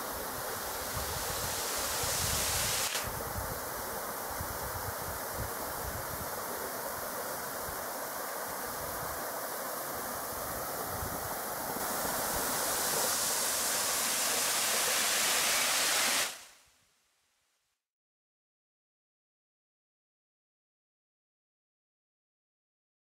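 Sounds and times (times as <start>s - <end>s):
forest stream and waterfall rushing: 0.0s - 16.6s.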